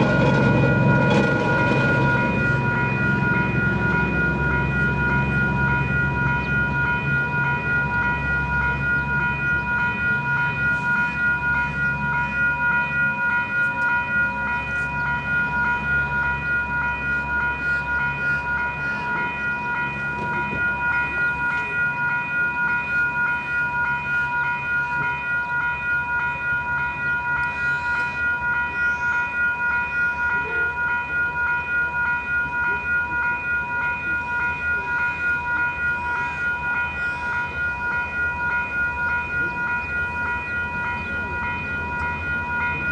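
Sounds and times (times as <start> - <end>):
low rumble: 0.0 - 10.5
level-crossing bells ringing: 0.0 - 42.9.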